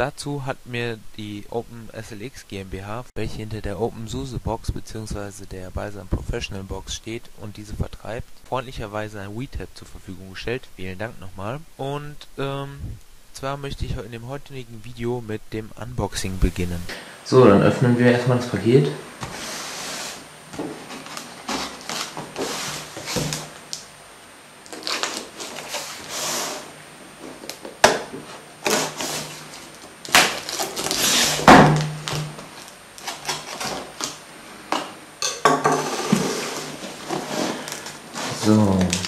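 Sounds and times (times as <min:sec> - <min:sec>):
knife slitting packing tape: 0:24.7 - 0:26.6, 0:28.6 - 0:29.4, 0:30.1 - 0:31.5, 0:33.0 - 0:34.2.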